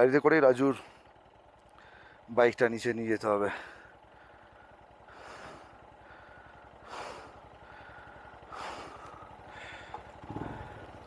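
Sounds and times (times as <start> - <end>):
engine idling: 0.0 - 11.0
heavy breaths: 1.7 - 2.3, 3.5 - 11.0.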